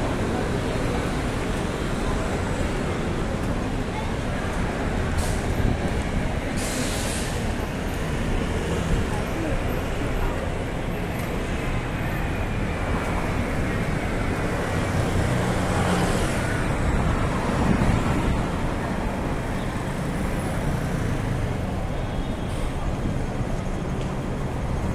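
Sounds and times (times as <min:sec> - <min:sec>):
bus and cars passing: 0:00.0 - 0:24.9
road noise hum: 0:00.0 - 0:24.9.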